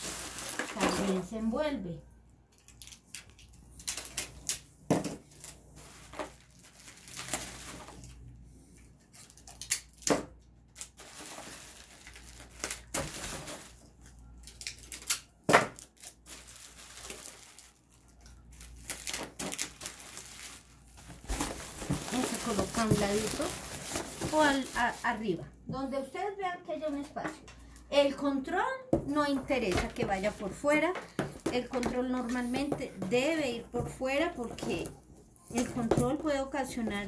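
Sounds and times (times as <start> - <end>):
bubble wrap rustling and crinkling: 0.0 - 1.6, 2.5 - 10.0, 10.7 - 25.4.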